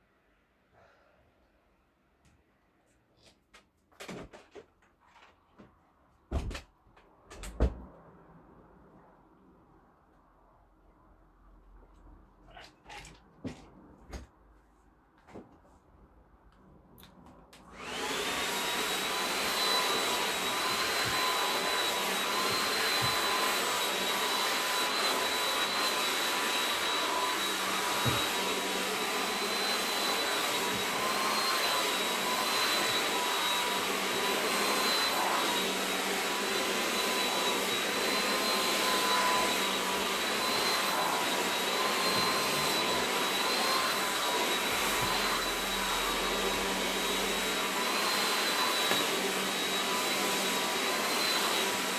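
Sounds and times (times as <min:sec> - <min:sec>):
hair dryer running: 0:17.6 - 0:51.9.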